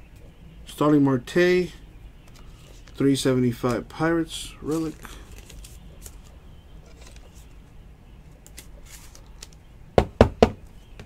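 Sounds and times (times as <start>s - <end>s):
low steady hum: 0.0s - 11.0s
plastic card sleeves rustling: 2.3s - 7.6s, 8.3s - 9.6s.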